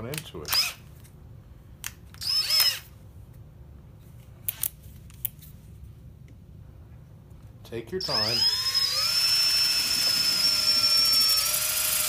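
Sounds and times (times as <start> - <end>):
cordless drill motor spinning: 2.2 - 2.8, 8.0 - 12.0.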